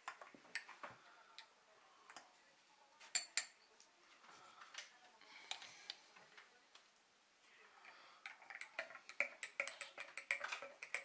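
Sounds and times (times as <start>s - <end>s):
teaspoon clinking in mug: 8.2s - 11.0s.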